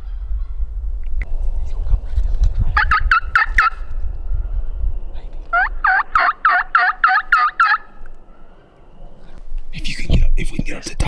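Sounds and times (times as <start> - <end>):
low rumble: 0.0 - 6.1
wild turkey calling: 2.8 - 4.7, 5.4 - 9.4.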